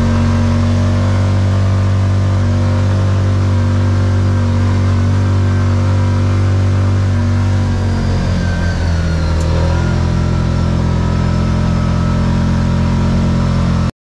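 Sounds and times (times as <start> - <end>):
atv engine running: 0.0 - 13.9.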